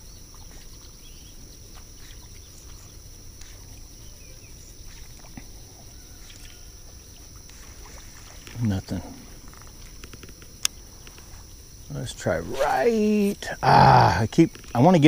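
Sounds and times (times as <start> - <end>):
insects droning: 0.0 - 15.0
low outdoor background: 0.0 - 15.0
faint ticks: 4.9 - 11.6.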